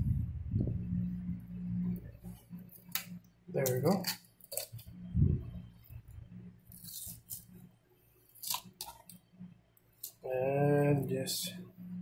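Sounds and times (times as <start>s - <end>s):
crunching and tearing scrapes: 6.7s - 7.6s, 8.3s - 9.2s.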